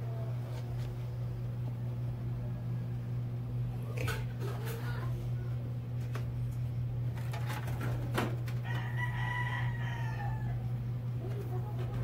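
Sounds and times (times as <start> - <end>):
steady low hum: 0.0 - 12.0
rooster crowing: 8.5 - 10.9.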